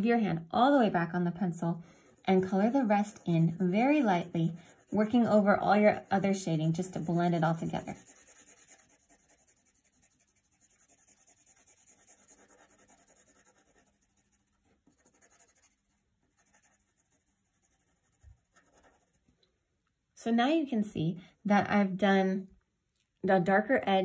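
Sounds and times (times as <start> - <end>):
pencil scratching on paper: 1.8 - 19.3.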